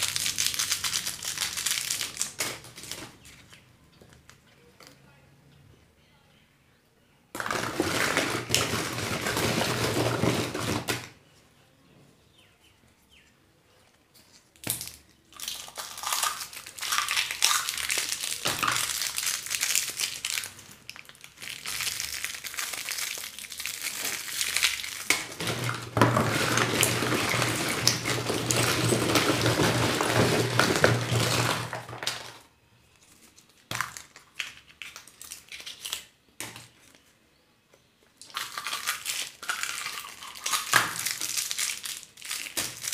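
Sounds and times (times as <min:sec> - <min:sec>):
wrappers crinkling: 0:00.0 - 0:03.6, 0:15.4 - 0:36.1, 0:38.2 - 0:42.9.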